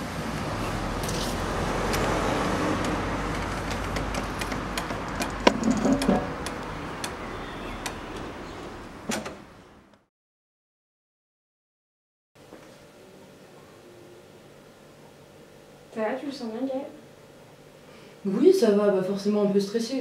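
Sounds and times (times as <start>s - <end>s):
street noise hum: 0.0s - 10.1s.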